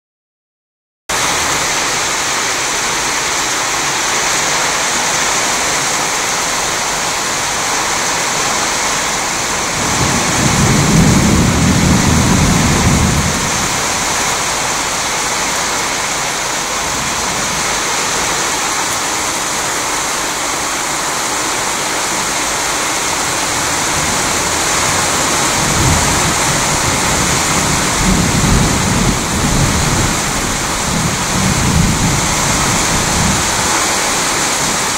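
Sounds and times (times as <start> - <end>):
heavy rain falling: 1.1 - 34.9
thunder rumbling: 7.3 - 19.1, 22.2 - 34.9.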